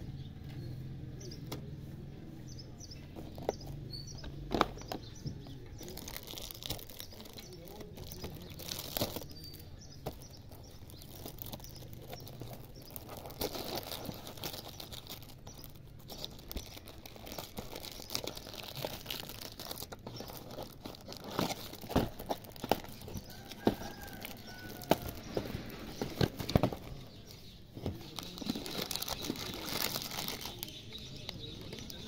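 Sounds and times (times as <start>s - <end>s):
plastic wrapping crinkling: 5.8s - 32.0s.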